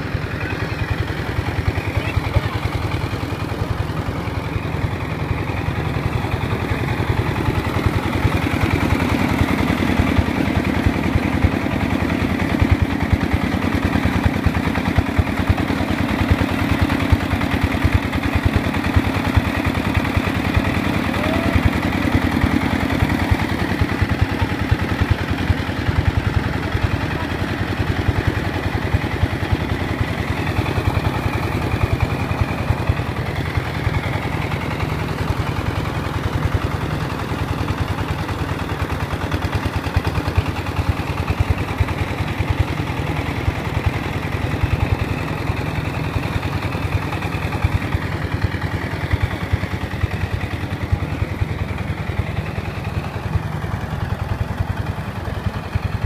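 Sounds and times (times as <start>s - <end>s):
diesel engine running: 0.0s - 56.0s.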